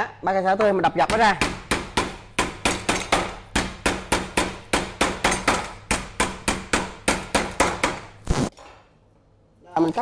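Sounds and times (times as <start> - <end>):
stalks pounded on wooden board: 0.9 - 8.1.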